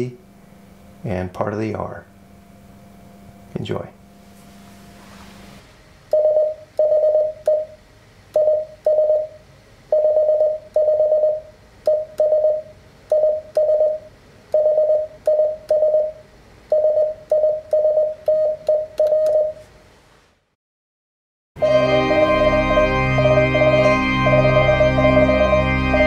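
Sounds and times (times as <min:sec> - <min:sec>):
morse code beeps: 0:06.1 - 0:07.8, 0:08.4 - 0:19.6.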